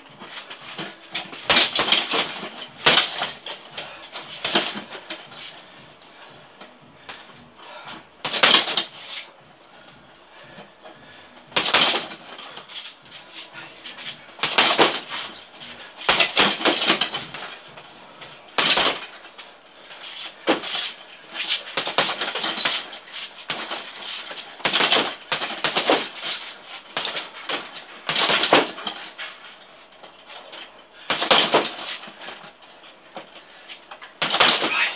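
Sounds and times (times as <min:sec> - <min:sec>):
chain jangling: 0:00.6 - 0:05.5, 0:08.3 - 0:09.2, 0:11.6 - 0:12.9, 0:14.4 - 0:17.8, 0:18.6 - 0:32.5, 0:34.2 - 0:34.9
punches on heavy bag: 0:00.7 - 0:05.4, 0:07.9 - 0:09.1, 0:11.5 - 0:12.6, 0:14.4 - 0:15.4, 0:16.0 - 0:17.6, 0:18.6 - 0:19.2, 0:20.4 - 0:29.2, 0:31.0 - 0:32.4, 0:34.2 - 0:34.9.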